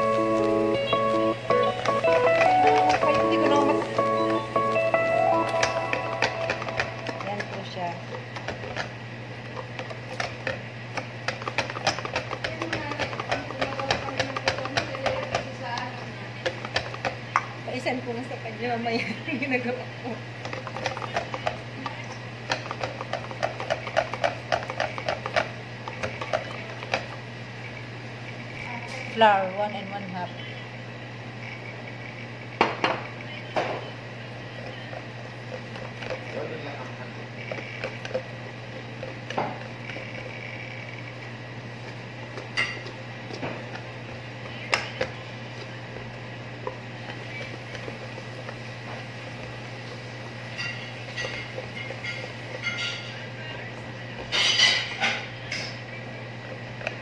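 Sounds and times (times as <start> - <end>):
whisk clicking against metal bowl: 6.2 - 8.9, 9.7 - 17.5, 20.4 - 27.1
whisk beating batter in metal bowl: 9.5 - 17.3, 49.4 - 53.2
whisk clinking on bowl: 50.5 - 53.2.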